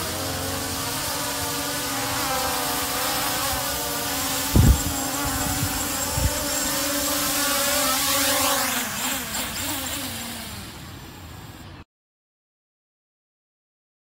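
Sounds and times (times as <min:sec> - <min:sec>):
drone propellers buzzing: 0:00.0 - 0:11.8.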